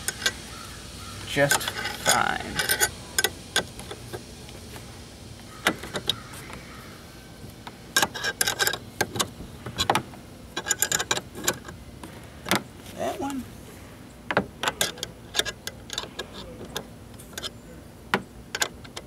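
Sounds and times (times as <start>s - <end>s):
metal wrench clicking on bolt: 1.5s - 4.0s, 7.9s - 10.0s, 10.6s - 11.8s, 14.6s - 17.6s, 18.5s - 19.0s.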